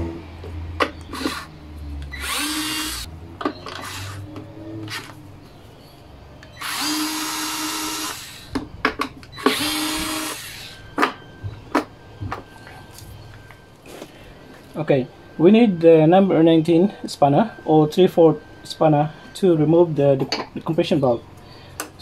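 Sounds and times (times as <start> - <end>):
electric screwdriver running: 2.1 - 3.1, 6.6 - 8.5, 9.4 - 10.7.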